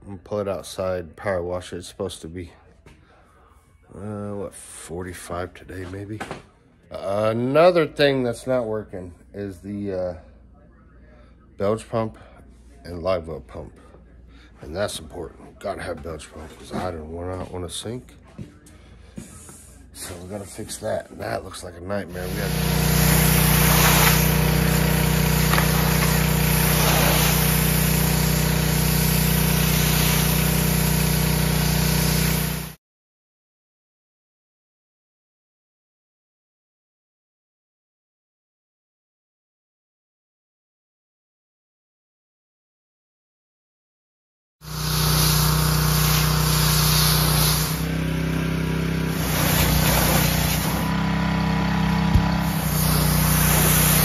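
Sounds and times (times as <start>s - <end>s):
pressure washer motor hum: 22.0s - 32.8s, 44.6s - 54.0s
water jet hissing: 22.1s - 32.8s, 44.7s - 48.0s, 49.0s - 51.0s, 52.1s - 54.0s.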